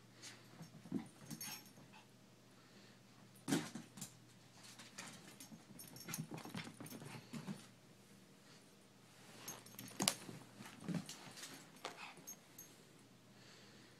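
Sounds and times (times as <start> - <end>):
dog paws scrabbling on floor: 3.5 - 7.7, 9.2 - 12.4.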